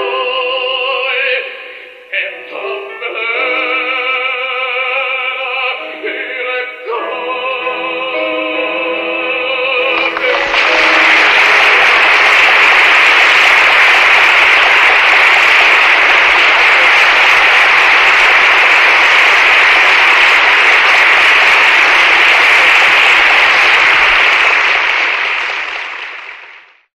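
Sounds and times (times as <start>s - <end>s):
audience applauding: 9.8s - 26.9s.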